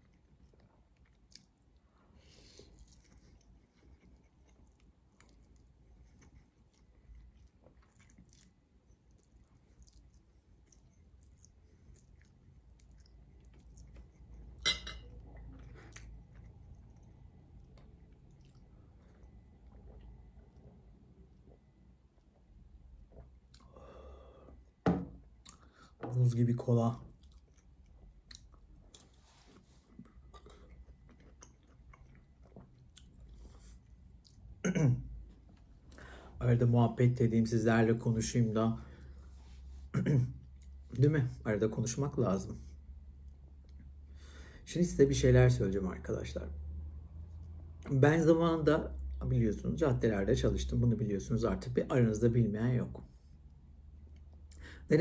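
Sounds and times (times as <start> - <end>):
mouth chewing: 0.0 - 20.6, 27.0 - 34.6.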